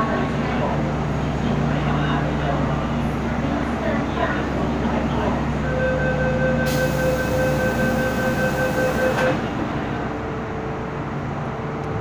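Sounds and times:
train hum: 0.0s - 12.0s
pulsing warning beep: 5.8s - 9.3s.

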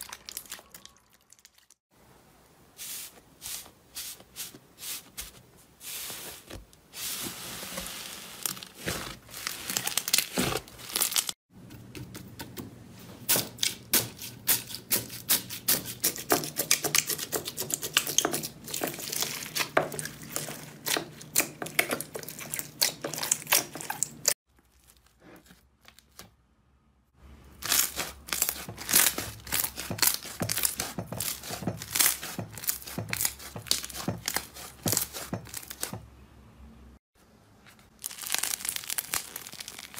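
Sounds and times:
hands squishing slime: 16.6s - 24.3s.

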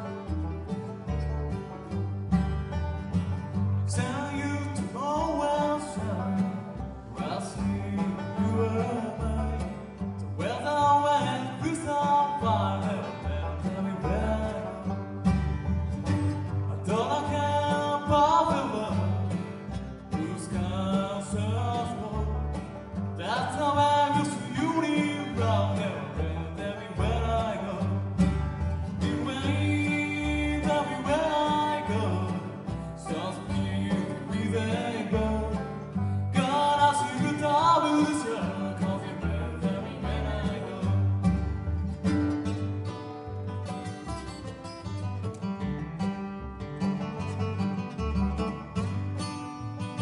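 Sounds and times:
bluegrass band playing: 0.0s - 50.0s
person singing: 3.9s - 15.0s, 16.8s - 19.5s, 20.1s - 22.6s, 23.2s - 41.4s.

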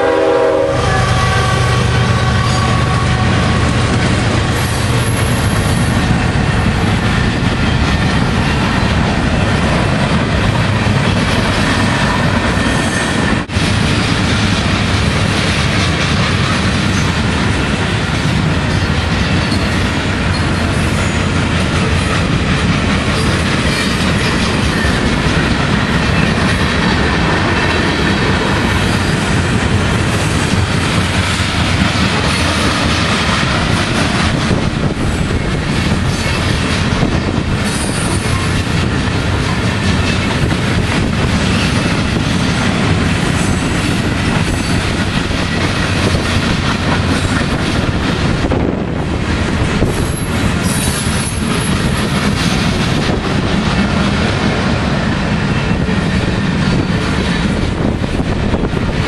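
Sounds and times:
freight train wheels on rails: 0.0s - 59.0s.

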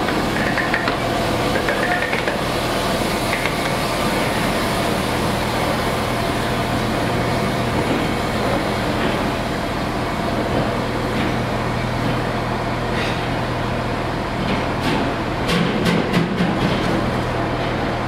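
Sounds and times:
steam locomotive hissing steam: 1.2s - 11.7s.

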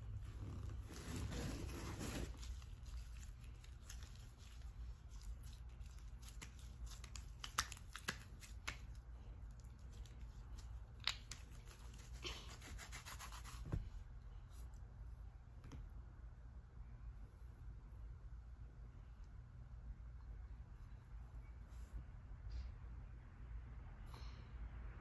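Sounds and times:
slime squishing: 0.1s - 12.3s.

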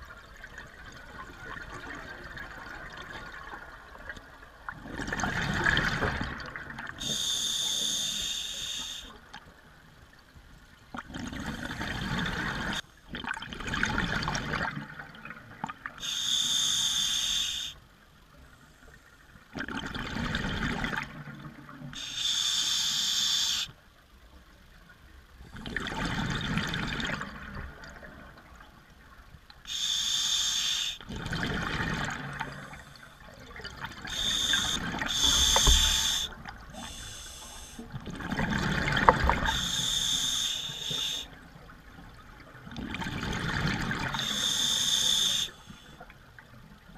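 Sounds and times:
rush of exhaled bubbles: 4.8s - 7.1s, 31.1s - 32.8s, 33.6s - 41.2s, 42.7s - 45.5s
hissing inhale through regulator: 7.0s - 9.2s, 16.0s - 17.8s, 22.0s - 23.8s, 29.7s - 31.0s, 34.0s - 37.9s, 39.4s - 41.4s, 44.1s - 46.0s.

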